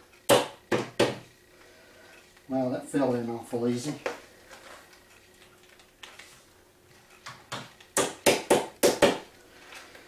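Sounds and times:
hammer knocking on wood: 0.3s - 1.3s, 7.5s - 9.3s.

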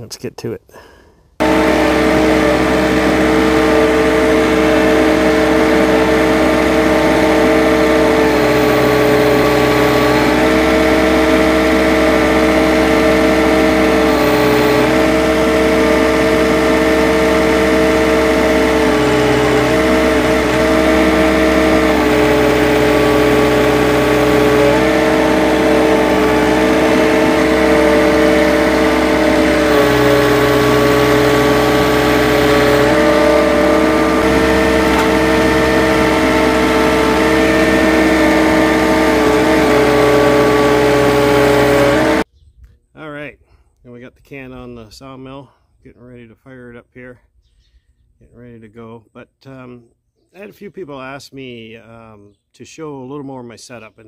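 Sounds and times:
tractor engine running: 1.4s - 42.3s.

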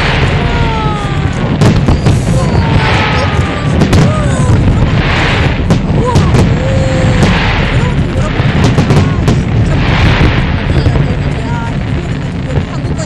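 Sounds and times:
firework whistles: 0.0s - 8.0s
fireworks booming and cracking: 0.0s - 13.0s.

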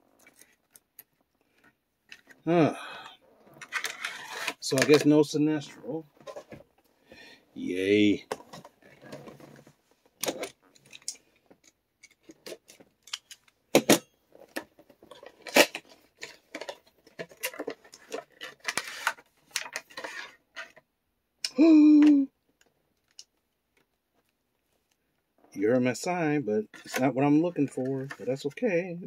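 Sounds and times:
person humming: 21.4s - 22.3s.

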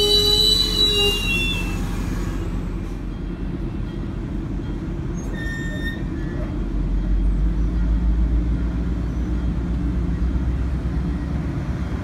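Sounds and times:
train wheel squeal: 0.0s - 3.3s, 3.9s - 7.8s
wheels rumbling on rails: 0.0s - 12.0s.

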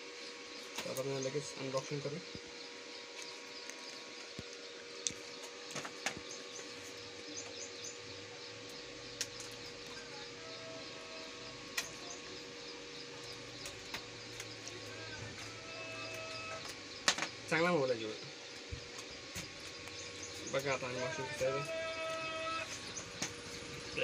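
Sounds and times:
faint steady hum: 0.0s - 24.0s
small birds chirping: 0.0s - 24.0s.

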